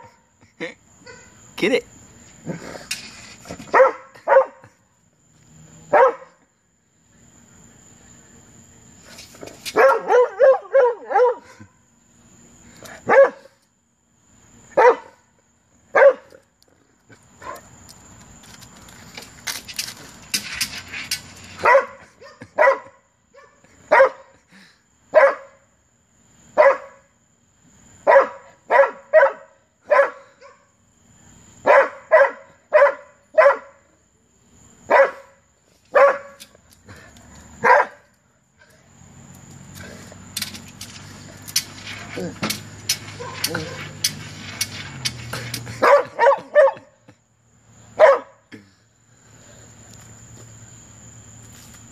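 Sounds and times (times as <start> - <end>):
dog barking: 3.7 - 4.8, 5.9 - 6.4, 9.8 - 11.7, 13.0 - 13.6, 14.8 - 15.2, 15.9 - 16.4, 21.6 - 24.3, 25.1 - 25.6, 26.6 - 27.0, 28.0 - 30.7, 31.6 - 33.8, 34.9 - 36.4, 37.6 - 38.0, 43.2 - 44.0, 45.8 - 46.9, 48.0 - 48.4.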